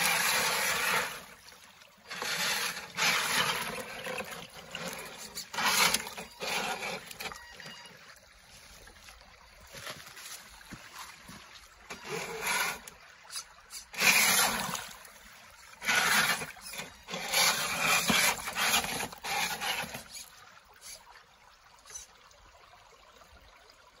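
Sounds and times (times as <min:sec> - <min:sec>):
rc car scraping on rocks: 0:00.0 - 0:01.4, 0:02.1 - 0:08.1, 0:11.9 - 0:15.2, 0:15.8 - 0:21.0, 0:21.9 - 0:22.1
faint water trickle: 0:00.0 - 0:24.0.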